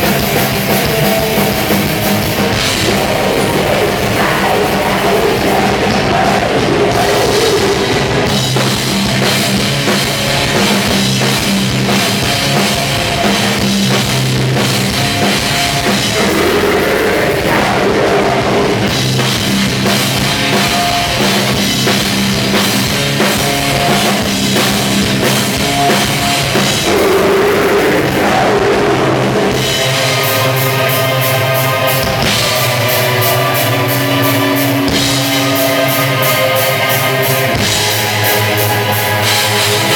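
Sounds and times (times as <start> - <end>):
vocals: 0.0 - 8.5, 15.8 - 19.1, 26.5 - 38.7
bass guitar: 0.0 - 39.9
distorted guitars: 0.0 - 39.9
drums: 0.0 - 39.9
sustained pitched notes: 0.0 - 39.9.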